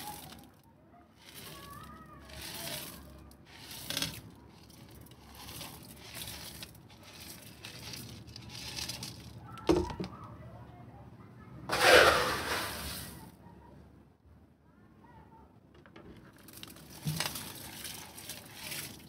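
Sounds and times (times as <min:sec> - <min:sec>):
gravel pouring into glass tank: 0:00.0 - 0:00.5, 0:01.2 - 0:09.4, 0:11.7 - 0:13.2, 0:16.3 - 0:19.0.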